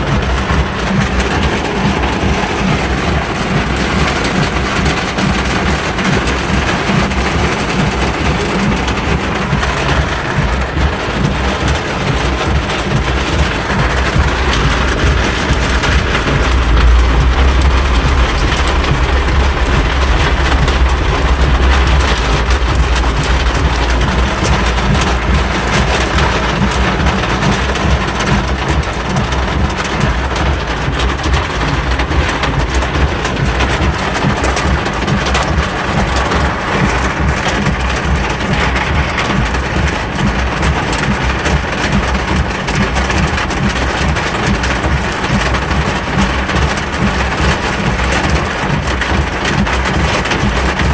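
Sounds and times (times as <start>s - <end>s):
wipers sweeping: 0.0s - 29.8s
car engine: 0.0s - 50.9s
deep low rumble: 0.0s - 50.9s
heavy rain on car roof: 0.0s - 50.9s.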